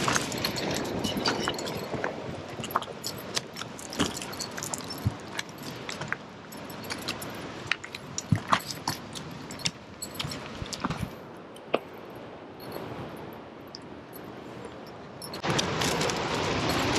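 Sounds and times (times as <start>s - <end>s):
footsteps on stony dirt trail: 0.0s - 11.2s.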